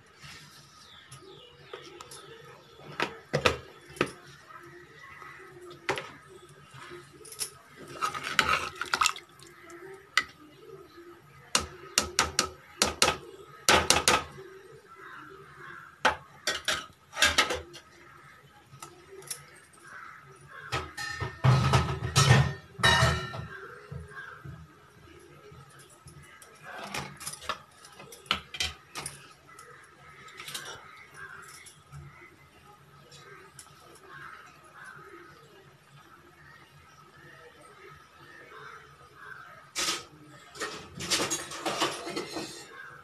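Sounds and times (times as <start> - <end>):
ladle scraping a metal pot: 7.8 - 9.2.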